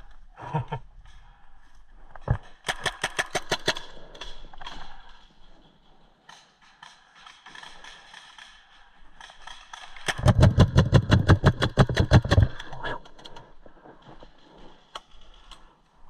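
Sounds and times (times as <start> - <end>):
paintball marker firing rapidly: 10.0 - 12.8.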